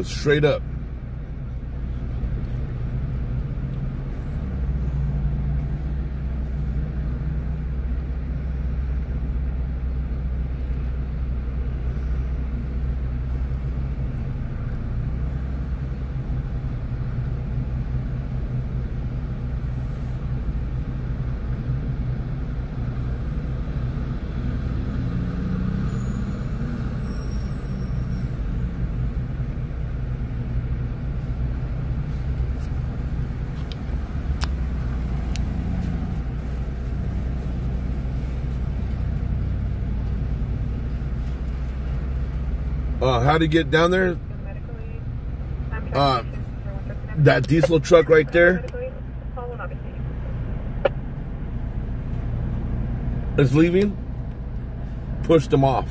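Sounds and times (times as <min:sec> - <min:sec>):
vehicle engine idling: 0:00.0 - 0:24.4, 0:27.0 - 0:55.9
road traffic: 0:00.0 - 0:55.9.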